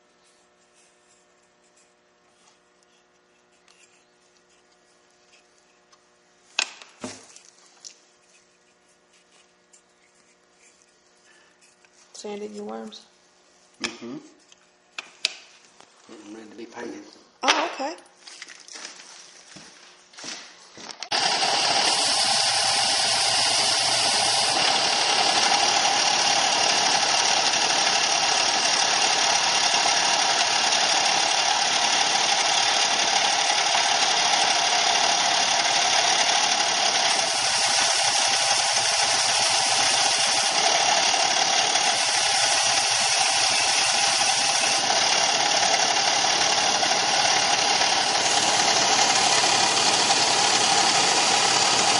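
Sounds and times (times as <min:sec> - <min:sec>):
sander running: 0:21.1 - 0:51.9
wood pieces being sanded: 0:21.1 - 0:51.9.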